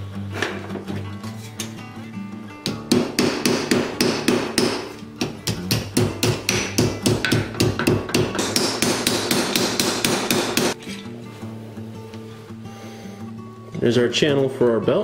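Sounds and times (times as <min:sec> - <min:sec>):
hammer beating brass on steel: 0:02.6 - 0:10.8.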